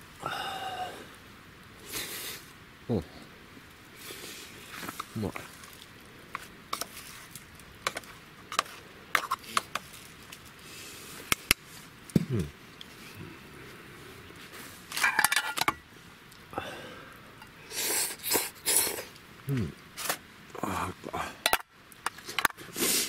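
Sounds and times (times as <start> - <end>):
metal mess tins clicking and scraping: 7.8 - 9.9, 14.9 - 15.8, 21.4 - 22.6.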